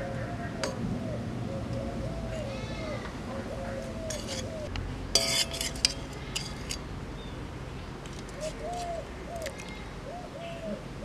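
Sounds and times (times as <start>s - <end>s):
bird cooing: 0.0s - 4.7s, 8.4s - 11.0s
metal spoon scraping a pan: 4.0s - 6.8s.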